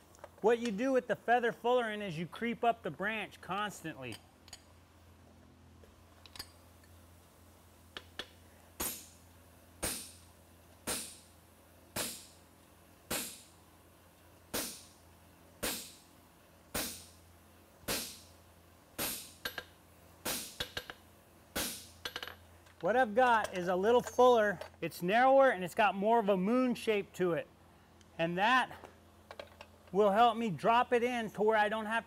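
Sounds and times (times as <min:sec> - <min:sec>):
hammer striking metal on anvil: 0:12.0 - 0:12.4, 0:17.9 - 0:18.2.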